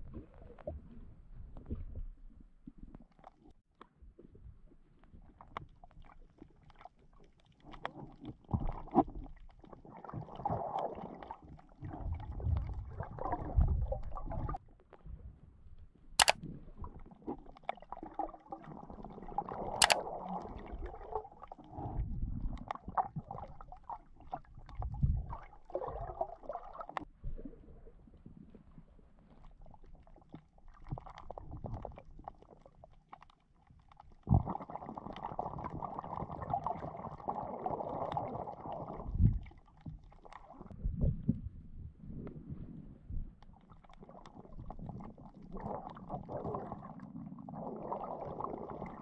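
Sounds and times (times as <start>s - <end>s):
underwater water gurgling: 0.0s - 49.0s
sharp clicks: 16.2s - 16.4s.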